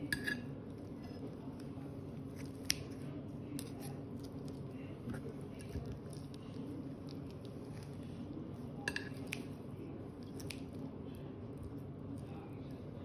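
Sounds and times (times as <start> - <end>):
cutlery scraping a plate: 0.0 - 0.5.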